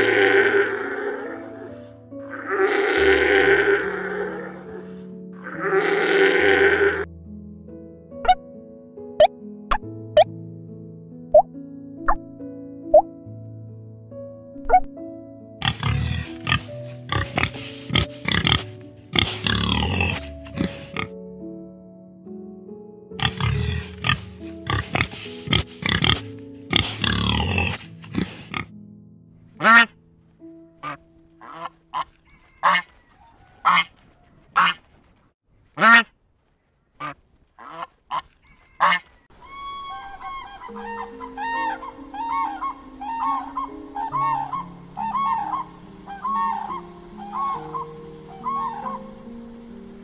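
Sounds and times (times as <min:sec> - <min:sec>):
background music: 0:00.0 - 0:33.8, 0:38.8 - 0:50.0
animal calls: 0:15.6 - 0:21.1, 0:23.2 - 0:28.6, 0:31.4 - 0:35.0, 0:37.0 - 0:49.4.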